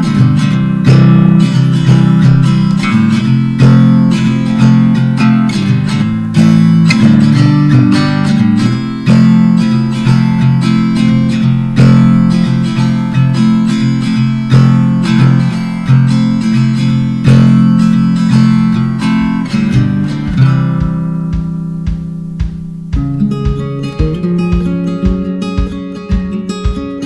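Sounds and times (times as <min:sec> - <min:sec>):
acoustic guitar playing: 0:00.0 - 0:27.0.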